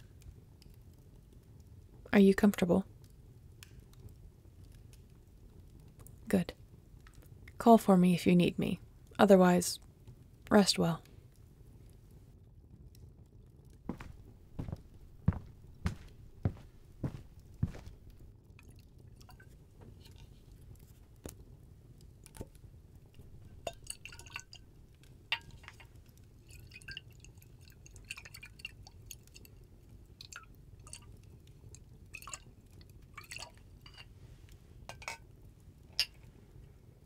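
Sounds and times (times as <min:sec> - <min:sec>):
low steady hum: 0:13.6 - 0:37.0
glassware clinking: 0:23.6 - 0:24.5.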